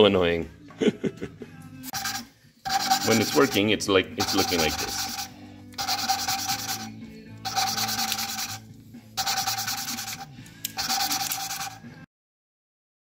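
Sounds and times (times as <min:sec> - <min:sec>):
valve grinding rasp: 0:01.9 - 0:03.6, 0:04.2 - 0:06.9, 0:07.5 - 0:08.6, 0:09.2 - 0:11.9.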